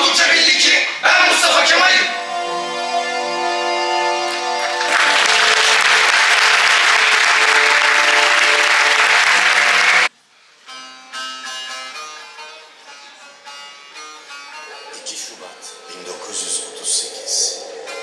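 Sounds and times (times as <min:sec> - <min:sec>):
held music chord: 0:02.0 - 0:10.1
audience applauding: 0:04.2 - 0:10.1.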